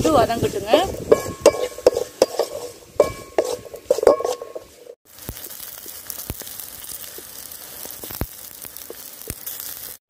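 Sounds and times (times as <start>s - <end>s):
wooden spatula scraping pan: 0.0s - 5.0s
garlic sizzling in oil: 0.0s - 10.0s.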